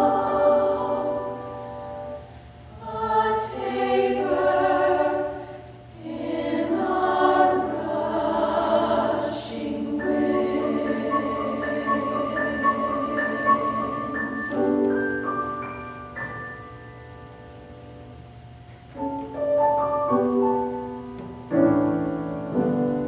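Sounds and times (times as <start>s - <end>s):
women's choir singing: 0.0s - 1.9s, 2.7s - 14.9s
piano accompaniment: 0.0s - 2.3s, 7.1s - 23.0s.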